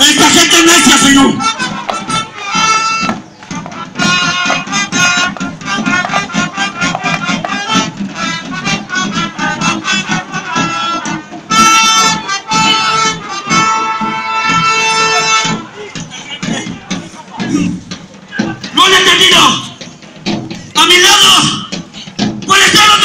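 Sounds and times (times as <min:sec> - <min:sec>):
accordion music: 0:00.0 - 0:20.2.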